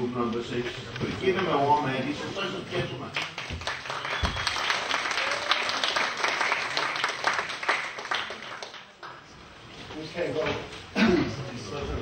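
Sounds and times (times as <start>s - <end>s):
audience applauding: 3.2s - 9.2s.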